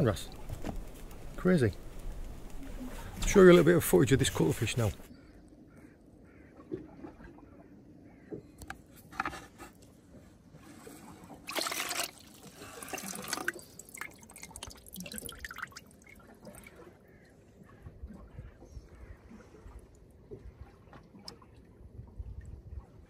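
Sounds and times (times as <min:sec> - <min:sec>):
water drips: 0:00.0 - 0:05.1, 0:11.5 - 0:21.7
water splashing and trickling: 0:00.0 - 0:05.1, 0:06.5 - 0:23.0.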